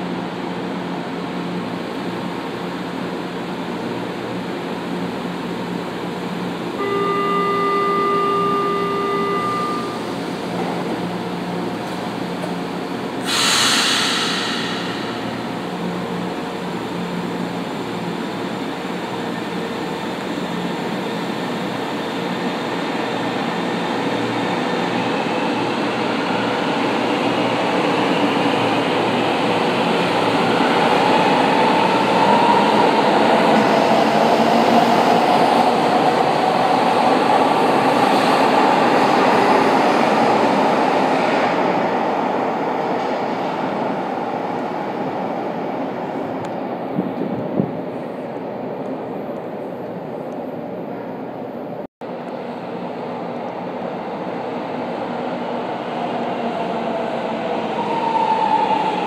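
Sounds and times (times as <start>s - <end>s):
train motor whine and rumble: 0.0s - 59.0s
door-closing warning tone: 6.8s - 10.7s
sharp hiss of air: 13.2s - 15.8s.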